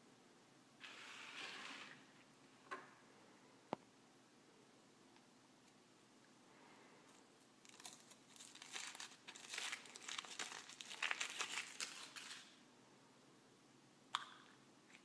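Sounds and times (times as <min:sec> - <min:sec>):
foil wrapper crinkling and tearing: 0:07.6 - 0:12.6.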